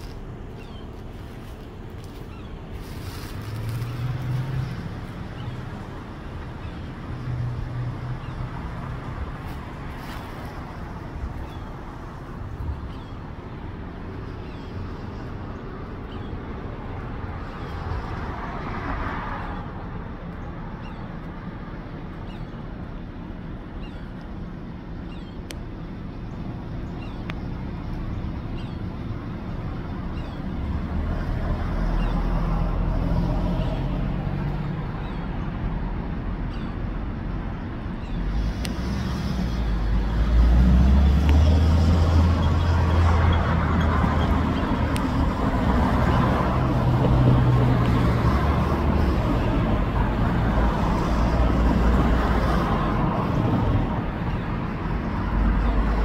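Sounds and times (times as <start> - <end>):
traffic rumble: 0.0 - 56.0
car passing: 38.4 - 56.0.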